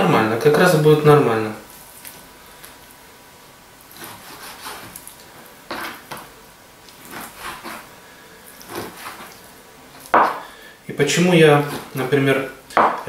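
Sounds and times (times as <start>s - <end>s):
knife slicing meat: 3.9s - 5.1s, 6.9s - 7.9s, 8.5s - 9.4s
knife tapping cutting board: 10.2s - 10.4s, 12.8s - 13.0s.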